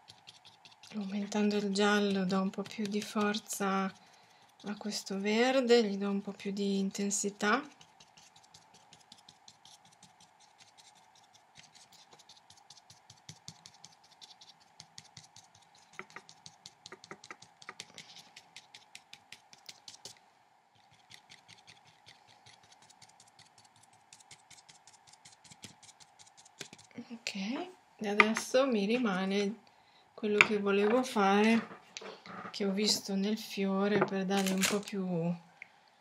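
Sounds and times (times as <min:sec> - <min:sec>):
paintbrush dabbing on paper: 0:00.0 - 0:20.2, 0:20.8 - 0:27.0.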